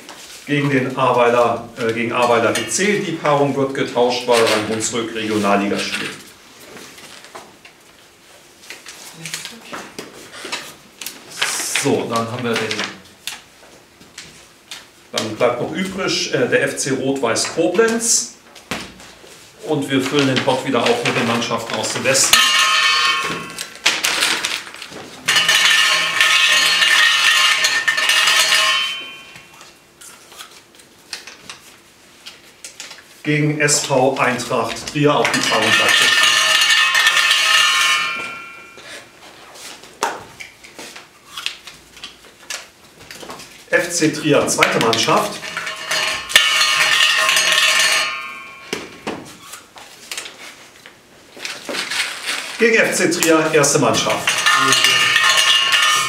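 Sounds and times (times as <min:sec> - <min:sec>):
lots rattling in metal cup: 0:54.0 - 0:56.0.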